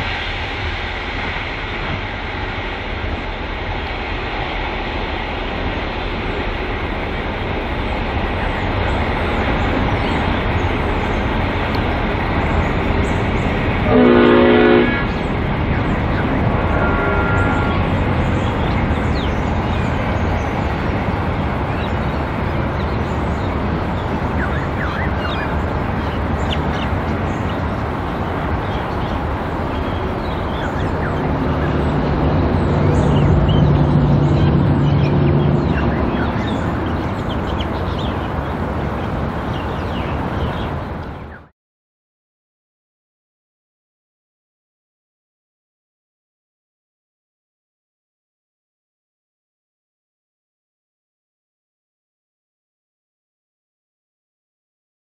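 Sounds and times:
diesel locomotive running: 0:00.0 - 0:41.5
train horn blast: 0:13.8 - 0:15.2, 0:16.6 - 0:17.9.

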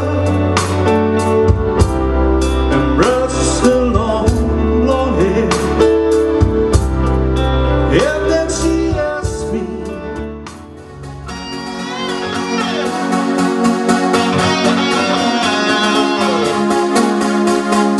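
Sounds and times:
person singing: 0:00.0 - 0:01.0, 0:02.7 - 0:06.0, 0:11.3 - 0:17.4
live pop band playing: 0:00.0 - 0:17.9.

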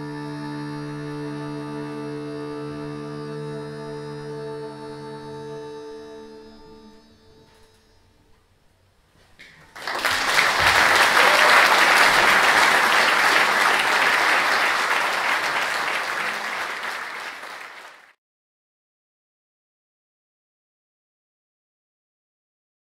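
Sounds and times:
audience applauding: 0:09.4 - 0:18.2.

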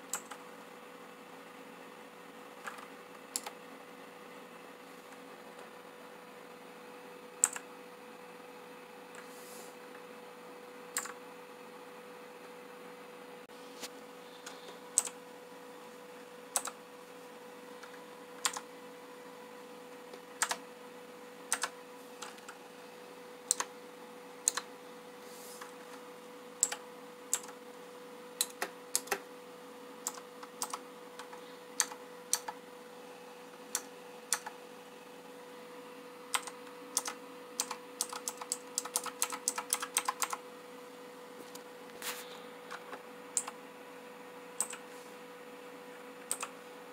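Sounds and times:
clicky keyboard keystrokes: 0:02.6 - 0:03.6, 0:07.4 - 0:07.6, 0:11.0 - 0:11.2, 0:15.0 - 0:15.2, 0:16.5 - 0:16.8, 0:18.4 - 0:18.6, 0:20.4 - 0:20.6, 0:21.5 - 0:22.6, 0:23.5 - 0:23.7, 0:24.4 - 0:24.7, 0:26.6 - 0:27.6, 0:28.4 - 0:29.2, 0:30.0 - 0:32.6, 0:36.3 - 0:40.4, 0:44.6 - 0:44.8, 0:46.3 - 0:46.5.

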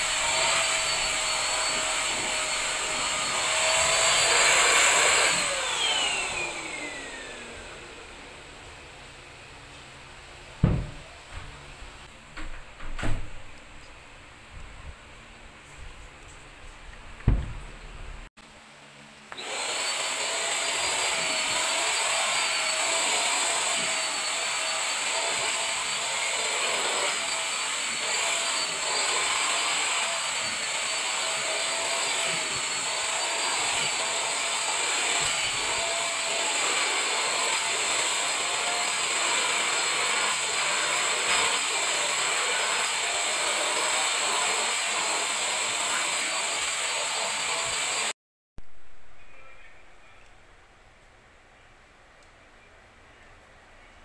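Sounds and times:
handheld vacuum cleaner whine: 0:00.0 - 0:09.1, 0:19.3 - 0:48.2
knock: 0:10.6 - 0:11.6, 0:17.2 - 0:17.7.

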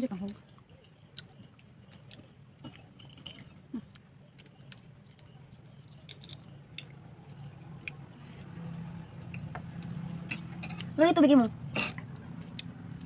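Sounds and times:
faint low hum: 0:00.0 - 0:13.0
chewing sounds: 0:00.2 - 0:08.3.

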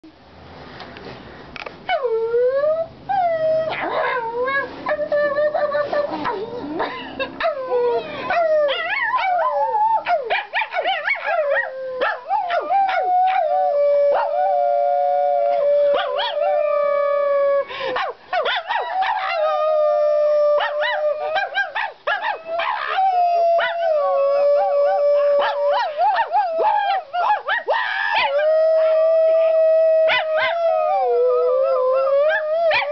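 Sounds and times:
dog howling and yipping: 0:07.4 - 0:17.4, 0:18.0 - 0:32.9
woman howling: 0:22.5 - 0:27.1.

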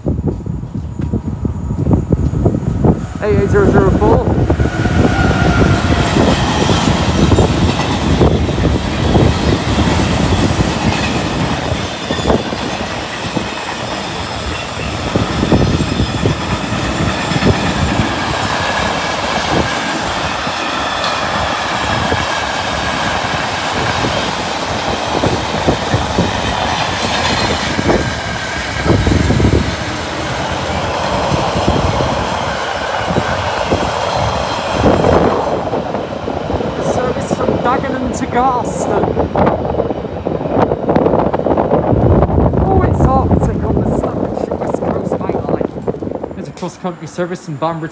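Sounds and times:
freight train rumble: 0:00.0 - 0:47.9
wheels clattering over rail joints: 0:05.8 - 0:35.3.

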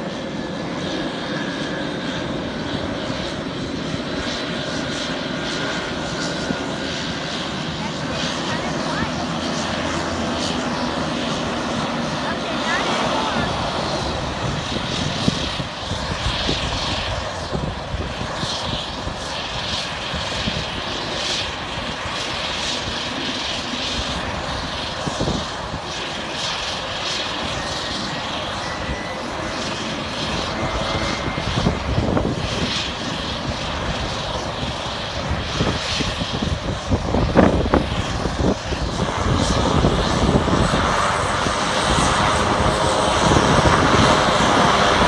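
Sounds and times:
turboprop engine drone: 0:00.0 - 0:45.0
faint high whine: 0:27.0 - 0:33.0.

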